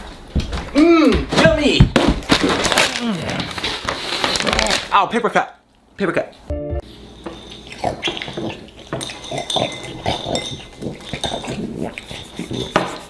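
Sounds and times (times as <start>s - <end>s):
dog snuffling and eating: 6.9s - 13.0s
metal spoon clinking on bowl: 7.2s - 11.6s.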